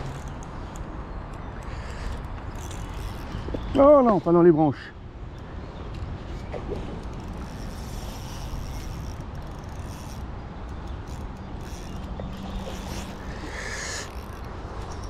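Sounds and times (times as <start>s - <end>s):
fishing reel ratcheting: 1.6s - 3.5s, 7.0s - 15.0s.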